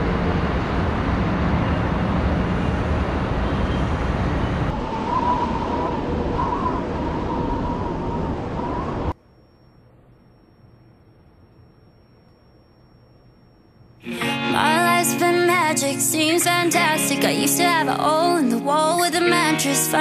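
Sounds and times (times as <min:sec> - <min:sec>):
loud rushing roar: 0:00.0 - 0:09.2
faint wavering whine: 0:00.0 - 0:19.5.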